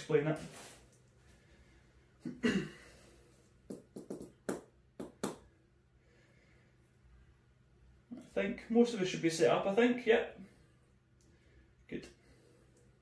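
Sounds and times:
sharp taps and knocks: 3.7 - 5.4.

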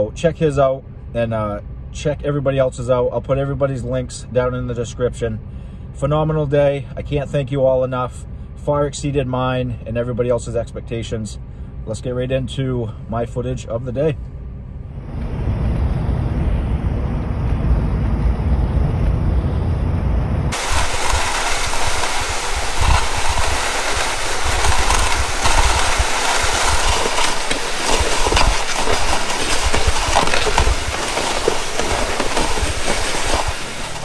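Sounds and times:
road rumble inside truck: 0.0 - 34.0
sled scraping across snow: 20.5 - 34.0.

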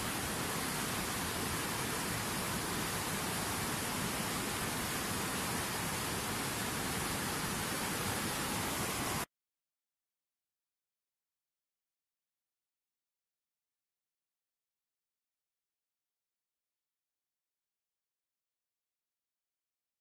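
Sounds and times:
waterfall roaring: 0.0 - 9.3.

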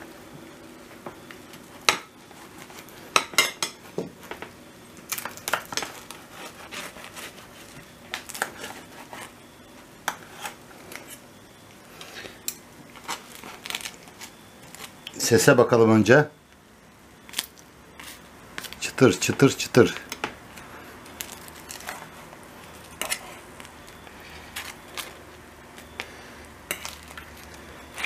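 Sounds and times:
knife cutting crisp pastry: 5.1 - 9.4, 22.8 - 23.5
knife scraping metal baking tray: 5.8 - 7.7, 10.1 - 11.2, 23.0 - 23.4.

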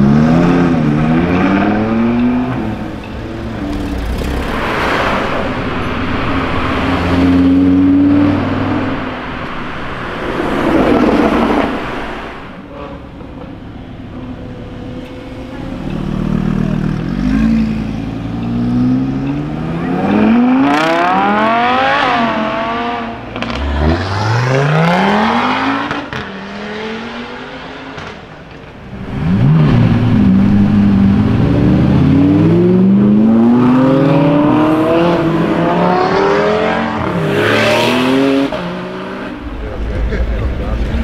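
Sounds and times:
car engines accelerating hard: 0.0 - 41.0.

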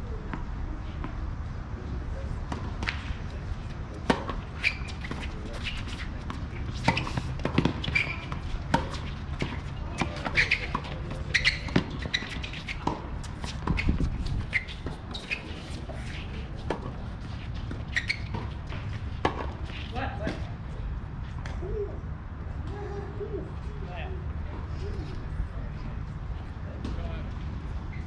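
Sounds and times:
tennis balls bouncing on court: 3.9 - 20.6.

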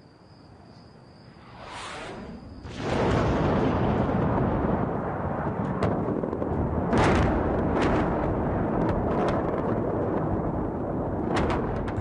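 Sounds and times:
sharp bomb blasts: 1.5 - 5.0
continuous heavy rumble: 1.7 - 12.0.

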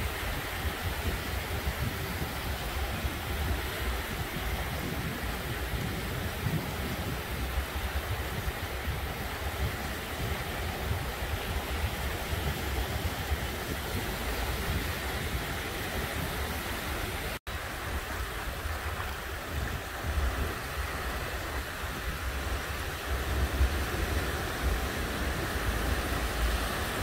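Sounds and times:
waves washing on beach: 0.0 - 27.0.

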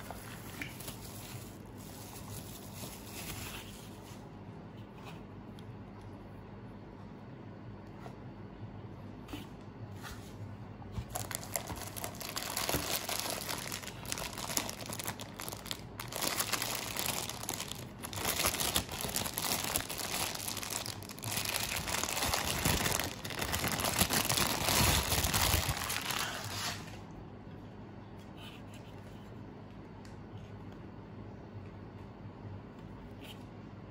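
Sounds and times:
plastic bag crinkling: 0.0 - 4.0, 11.1 - 27.0.

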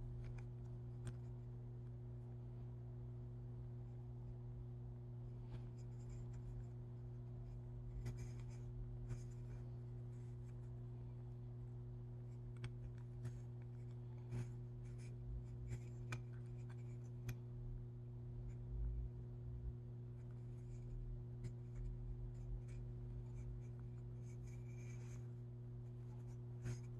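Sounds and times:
small clicks and scratches: 0.0 - 2.0, 5.4 - 17.6, 18.4 - 18.7, 20.1 - 26.9
steady low hum: 0.0 - 26.9.

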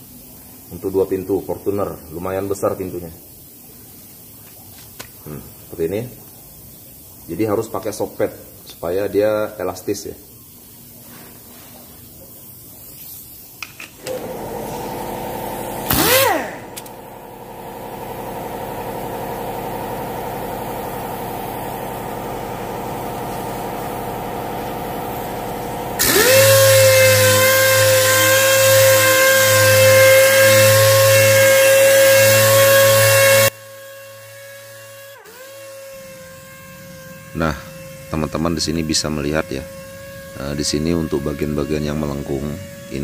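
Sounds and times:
air sander whining: 13.7 - 43.0.

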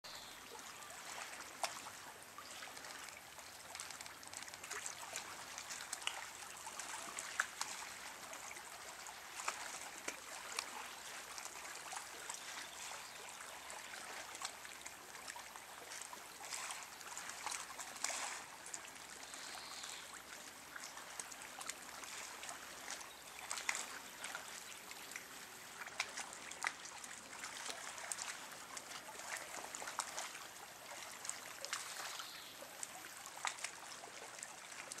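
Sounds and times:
waves lapping on pebbles: 15.9 - 18.6.

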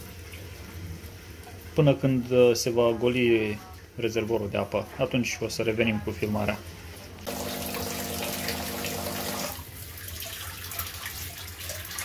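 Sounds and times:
water trickling and dripping: 0.0 - 2.4, 7.3 - 12.0
coffee machine pump humming: 7.3 - 9.7.

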